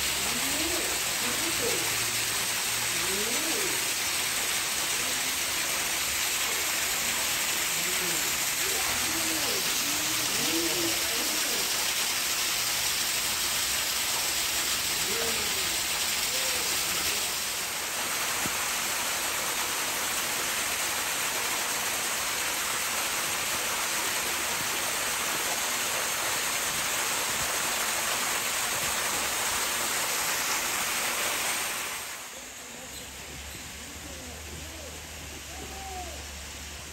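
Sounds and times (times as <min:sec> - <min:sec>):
faint distant voices: 0:00.0 - 0:12.1, 0:13.9 - 0:18.6, 0:31.1 - 0:36.9
flowing water rushing: 0:00.0 - 0:36.9.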